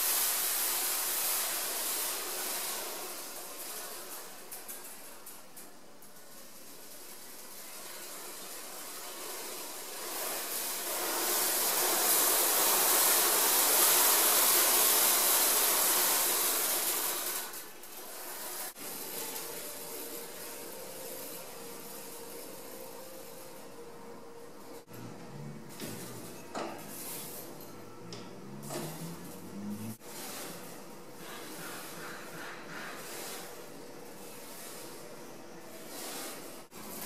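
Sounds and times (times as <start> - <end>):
metal shavings scraping metal plate: 26.0 - 27.7, 28.6 - 37.0.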